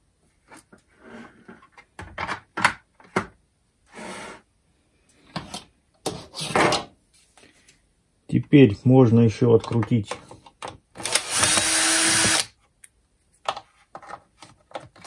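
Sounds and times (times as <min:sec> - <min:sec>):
scraping on metal workbench: 0:03.9 - 0:04.5.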